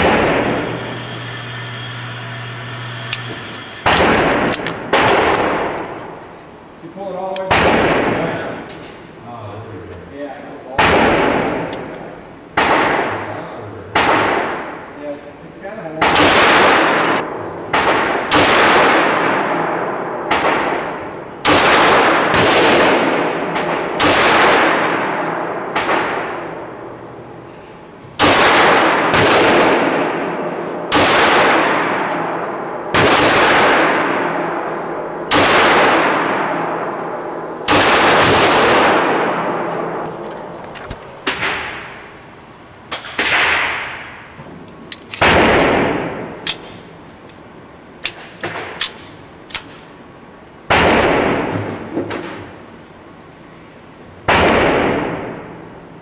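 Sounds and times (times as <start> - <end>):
pistol shots indoors: 0.0 - 0.8, 3.1 - 6.2, 7.4 - 8.6, 10.8 - 13.3, 13.9 - 15.0, 16.0 - 27.5, 28.2 - 40.6, 41.2 - 42.2, 42.9 - 44.4, 45.0 - 46.8, 50.6 - 52.4, 54.2 - 55.8.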